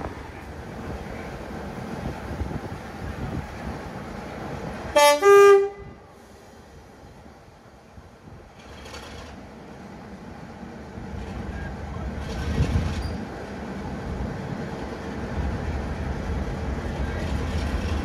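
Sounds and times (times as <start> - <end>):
diesel locomotive engine running: 0.0 - 18.0.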